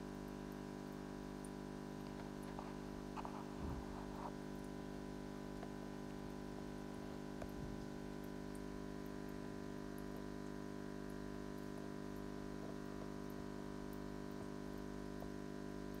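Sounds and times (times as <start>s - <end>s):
air pump electric hum: 0.0s - 16.0s
faint ticks: 7.2s - 16.0s.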